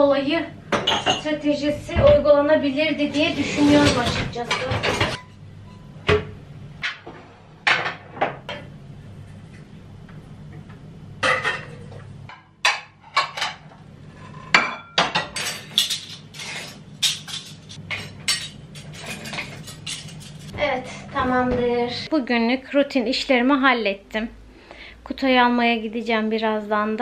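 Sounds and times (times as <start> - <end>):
low steady hum: 0.0 - 27.0
dishes and cutlery clinking: 3.5 - 7.0, 11.2 - 20.5.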